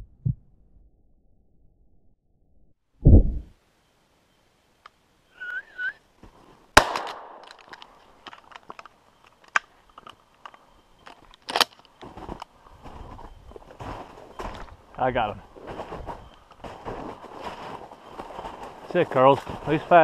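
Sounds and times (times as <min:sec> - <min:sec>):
shotgun shot: 0:06.8 - 0:07.4
loud sharp crack: 0:06.8 - 0:07.6
branches snapping and brushing: 0:06.8 - 0:12.5.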